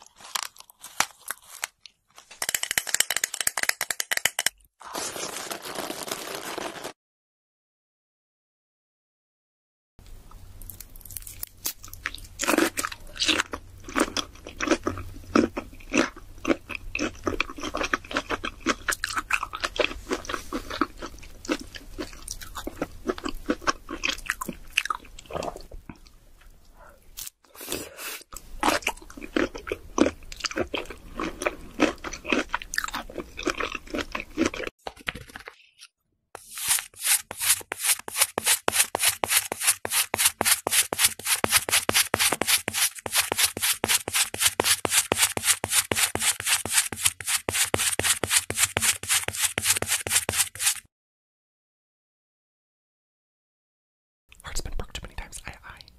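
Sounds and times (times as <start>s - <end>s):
wet chewing and crunchy bites: 0.0s - 2.0s, 10.6s - 26.1s, 28.3s - 35.5s
pencil scraping kinetic sand: 36.4s - 50.9s.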